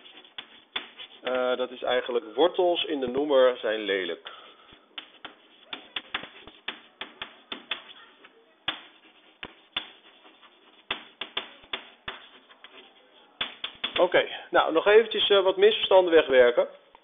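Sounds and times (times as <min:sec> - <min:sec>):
chalk tapping on blackboard: 0:00.0 - 0:01.3, 0:04.7 - 0:14.2
chalk scratching: 0:00.0 - 0:01.6, 0:03.8 - 0:14.2.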